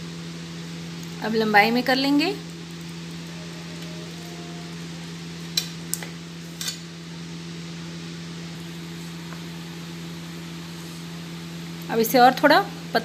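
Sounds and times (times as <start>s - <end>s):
low hum: 2.4s - 7.6s.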